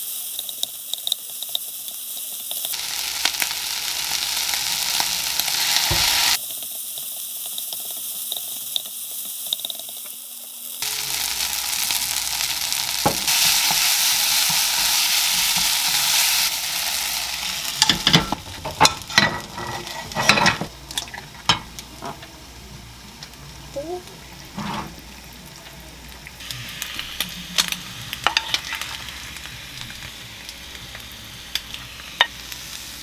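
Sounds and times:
rice sizzling in a frying pan: 0:00.0 - 0:33.0.

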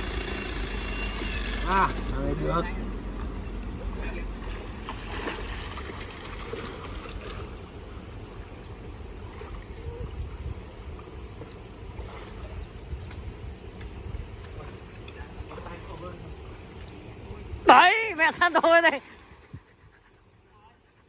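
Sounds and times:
stream water rushing: 0:00.0 - 0:09.8
swimmer splashing: 0:02.7 - 0:10.1, 0:14.4 - 0:19.5.

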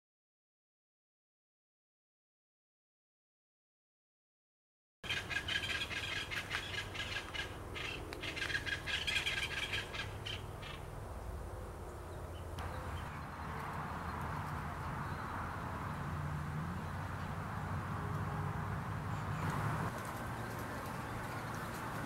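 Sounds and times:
birds calling harshly: 0:05.0 - 0:17.4.

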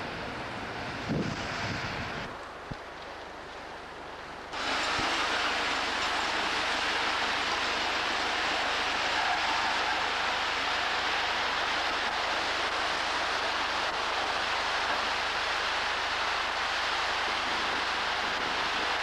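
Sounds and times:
seawater and shingle rushing: 0:04.5 - 0:19.0.

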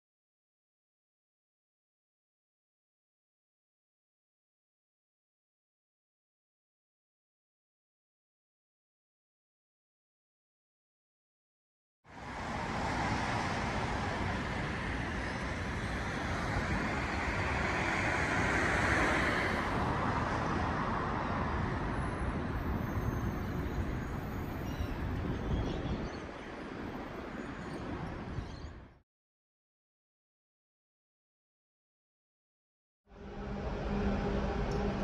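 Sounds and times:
road traffic rushing: 0:12.1 - 0:28.5, 0:33.1 - 0:35.0
vehicle passing close: 0:12.3 - 0:20.7.

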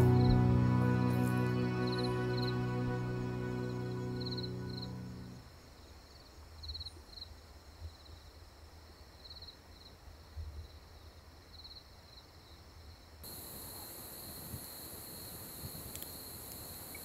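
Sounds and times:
low rumble: 0:00.0 - 0:05.4
high-pitched insect chorus: 0:00.0 - 0:07.3, 0:13.2 - 0:17.0
insects chirping trills: 0:00.0 - 0:10.0, 0:10.6 - 0:17.0.

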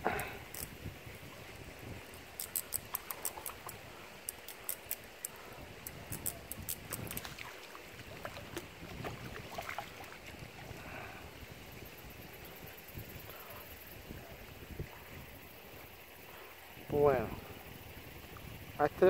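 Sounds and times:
sharp high ticks: 0:02.1 - 0:07.3
fish splashing in water: 0:06.8 - 0:10.7.

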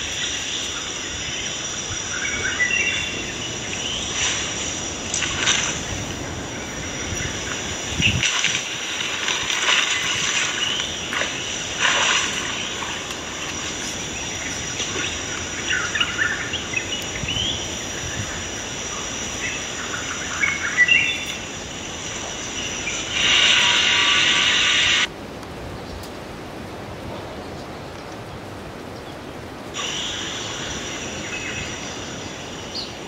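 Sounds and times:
loud rush of noise: 0:21.4 - 0:25.1.

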